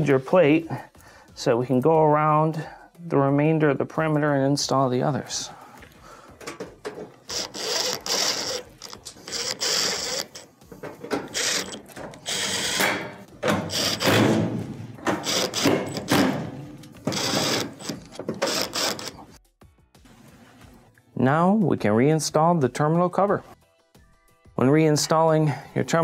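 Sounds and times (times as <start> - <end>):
cordless drill driving screws: 7.2 - 10.5, 11.1 - 14.2, 15.1 - 19.3.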